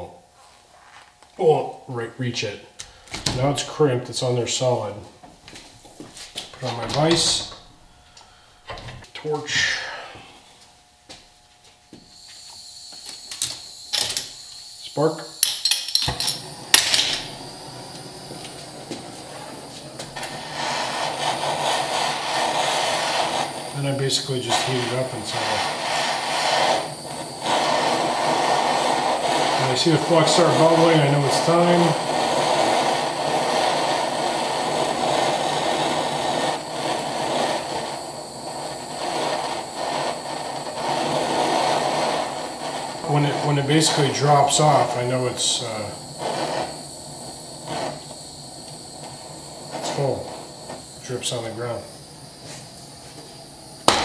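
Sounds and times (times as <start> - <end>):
gas torch flame hissing: 5.5 - 11.2, 11.9 - 54.0
spark igniter clicks: 12.4 - 14.6, 15.4 - 52.9, 53.6 - 54.0.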